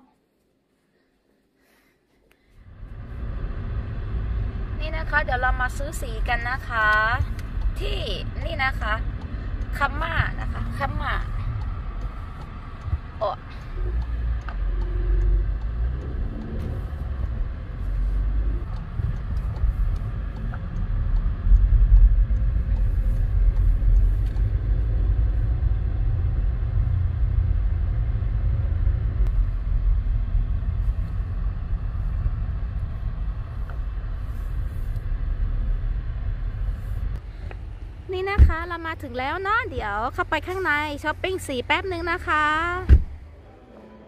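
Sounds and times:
car engine and road rumble: 2.3s - 44.0s.

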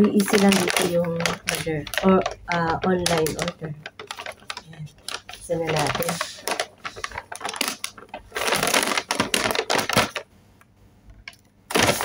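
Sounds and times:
paper bag crinkling: 0.0s - 10.3s, 11.7s - 12.0s.

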